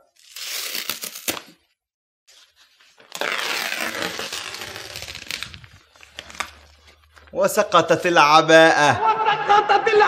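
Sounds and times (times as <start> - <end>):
wrapping sheet rustling: 2.3 - 7.4.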